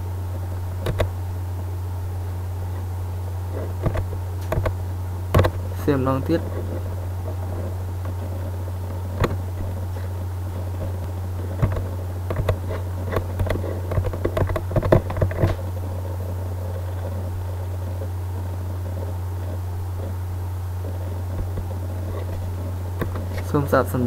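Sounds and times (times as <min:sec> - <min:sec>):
steady low hum: 0:00.0 - 0:24.0
short clicks and knocks: 0:03.8 - 0:05.6.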